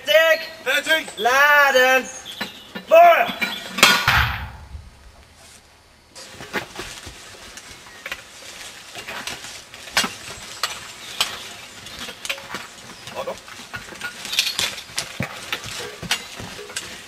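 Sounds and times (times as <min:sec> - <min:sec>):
leaves rustling: 0:00.6 - 0:17.0
low rumble: 0:04.1 - 0:05.3
footsteps in undergrowth: 0:04.9 - 0:17.0.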